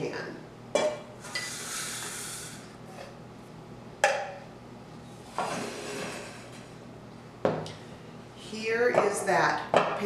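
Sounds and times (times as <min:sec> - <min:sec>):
dishes scraping and clattering: 0:05.3 - 0:06.6.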